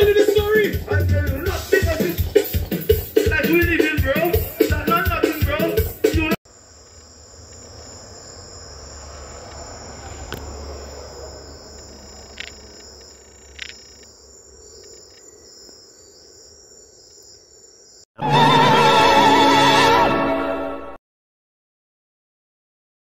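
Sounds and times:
crickets trilling: 1.7 - 18.1.

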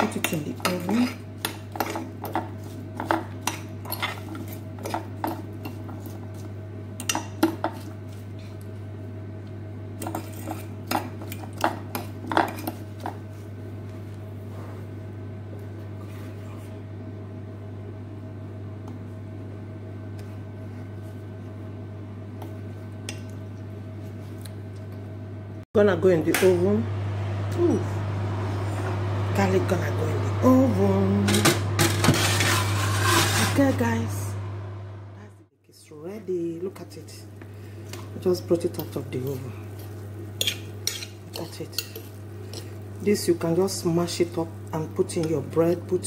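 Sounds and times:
low hum: 25.0 - 35.5.

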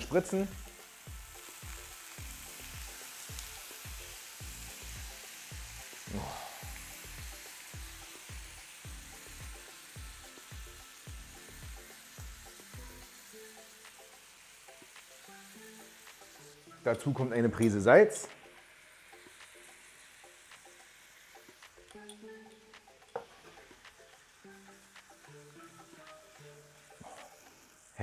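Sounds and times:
food sizzling in frying pan: 0.0 - 28.0.

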